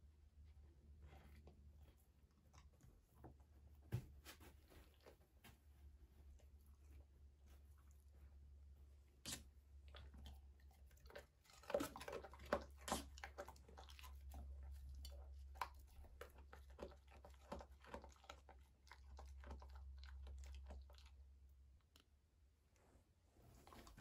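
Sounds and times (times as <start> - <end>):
dogs chewing food: 9.2 - 22.1.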